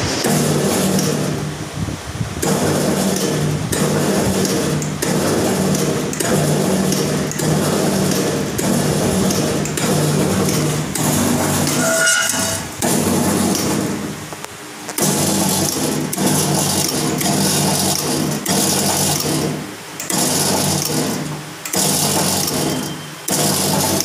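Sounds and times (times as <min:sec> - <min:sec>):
punching press motor hum: 0:00.0 - 0:24.0
press ram striking: 0:02.4 - 0:14.2
short machine squeal: 0:11.6 - 0:12.7, 0:22.5 - 0:23.3.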